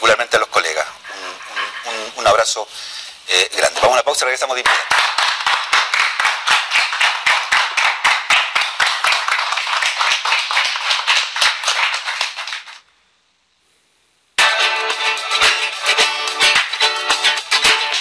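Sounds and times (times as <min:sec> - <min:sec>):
audience applause: 0:04.7 - 0:12.8
music: 0:14.4 - 0:18.0.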